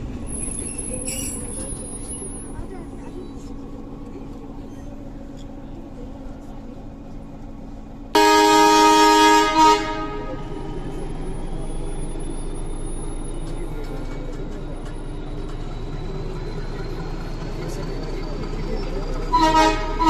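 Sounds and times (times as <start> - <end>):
train rumble: 0.0 - 20.0
train horn: 8.2 - 10.6, 19.3 - 20.0.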